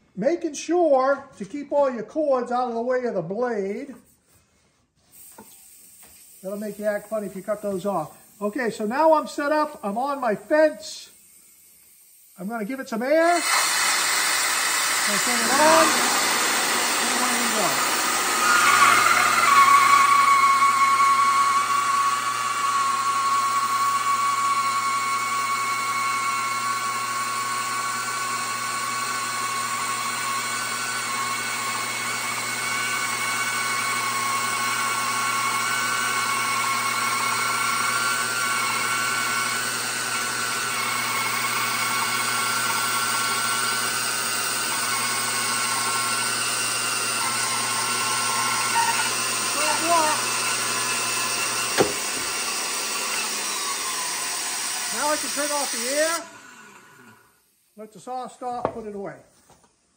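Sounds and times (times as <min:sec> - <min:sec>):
compressed air hissing: 0:04.0 - 0:19.4
bandsaw whining: 0:06.4 - 0:11.6, 0:12.4 - 0:57.4.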